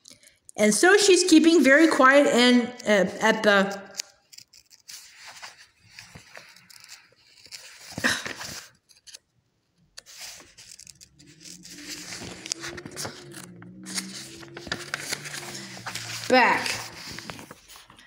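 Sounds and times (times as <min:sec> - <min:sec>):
paper page rustling: 0:04.3 - 0:09.2, 0:10.0 - 0:18.0.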